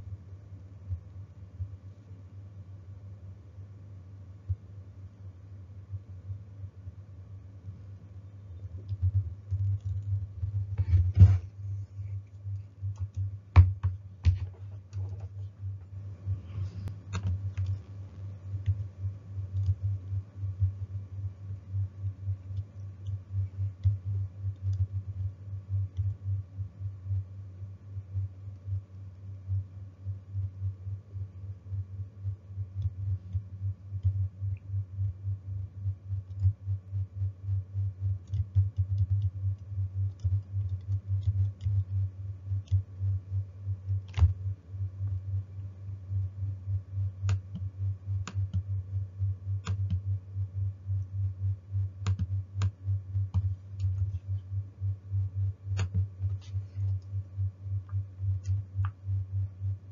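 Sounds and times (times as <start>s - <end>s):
pulsing low hum: 0.0s - 59.9s
computer keyboard typing: 8.8s - 11.0s, 12.8s - 15.4s, 19.5s - 19.9s, 38.2s - 39.4s, 40.1s - 41.9s, 44.0s - 44.4s, 52.0s - 54.2s.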